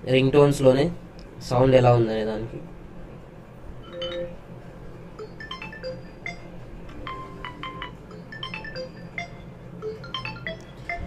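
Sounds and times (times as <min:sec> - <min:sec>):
phone ringtone chiming melody: 0:03.9 - 0:04.4, 0:05.2 - 0:11.0.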